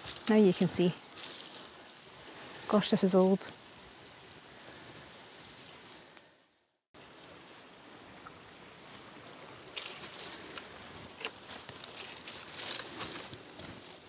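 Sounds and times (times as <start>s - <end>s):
dry leaves rustling and crunching: 0.0s - 2.1s, 9.3s - 14.0s.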